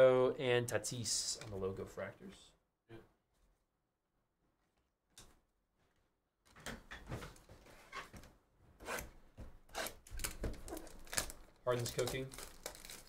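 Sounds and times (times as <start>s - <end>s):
plastic wrap rustling: 10.2s - 13.0s.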